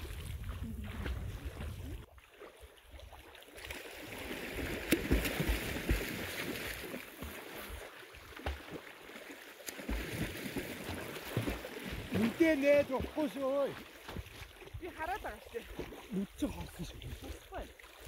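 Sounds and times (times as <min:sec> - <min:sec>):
waves lapping on pebbles: 0:00.0 - 0:02.0, 0:08.7 - 0:18.0
swimmers splashing: 0:03.5 - 0:18.0.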